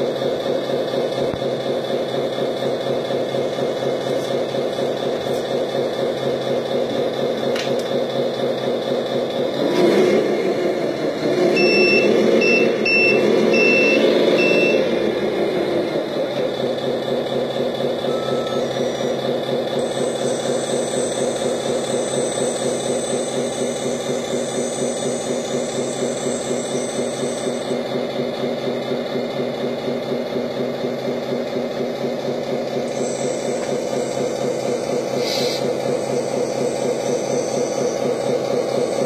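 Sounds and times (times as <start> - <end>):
simulated diesel engine idling: 0.0 - 39.0
faint high mechanism whine: 17.9 - 28.0, 32.8 - 39.0.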